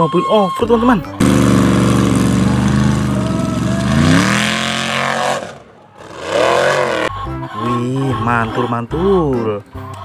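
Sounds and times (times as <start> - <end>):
buggy engine revving hard: 1.2 - 7.1.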